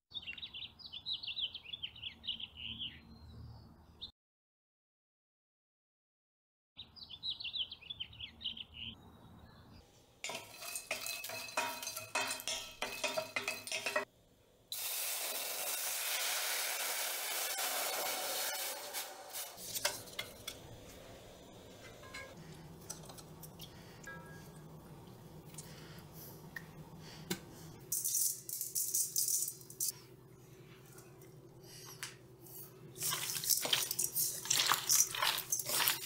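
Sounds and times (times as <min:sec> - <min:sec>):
bird chirping: 0:00.1 - 0:04.1, 0:06.8 - 0:09.8
utensils clattering against metal: 0:10.2 - 0:14.1, 0:18.4 - 0:20.8, 0:21.8 - 0:24.6, 0:27.9 - 0:29.9, 0:33.0 - 0:36.0
pot hissing: 0:10.3 - 0:14.1, 0:14.7 - 0:20.4.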